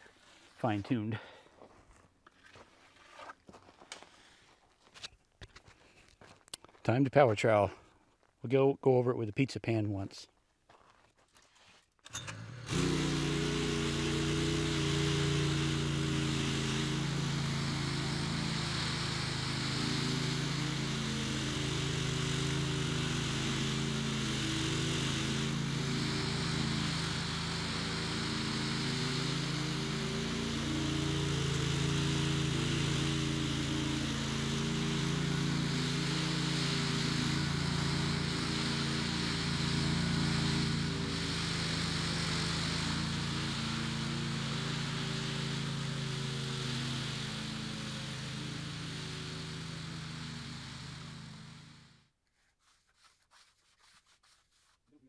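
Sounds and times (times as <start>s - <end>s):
small gasoline engine running: 12.1s - 52.1s.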